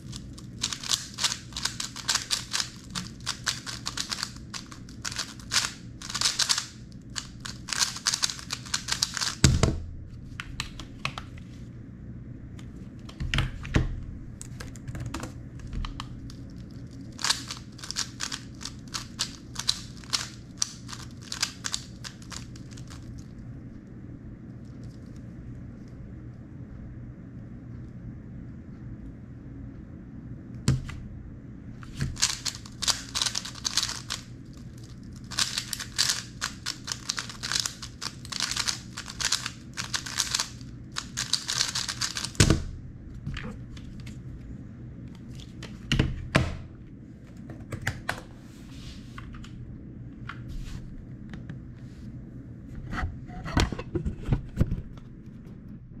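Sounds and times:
speed cube clicking: 0.0 - 9.5, 14.7 - 23.4, 32.0 - 42.5.

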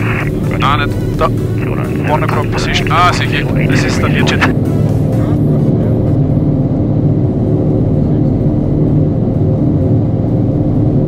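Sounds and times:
aircraft piston engines and propellers: 0.0 - 11.0.

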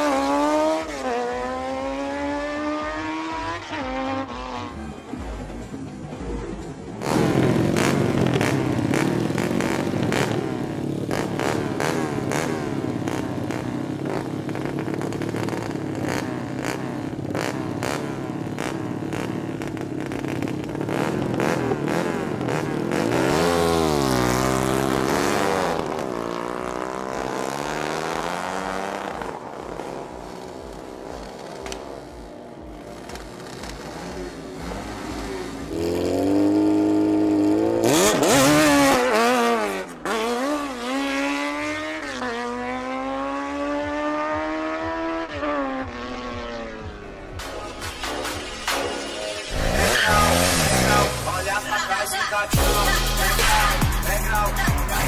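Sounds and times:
motorcycle engine revving with crackle: 7.0 - 41.8.

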